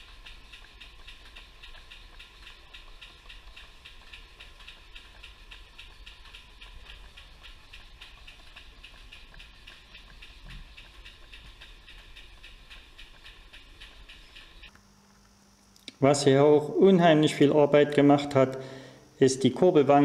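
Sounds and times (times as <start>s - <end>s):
model steam engine running: 0.0s - 14.7s.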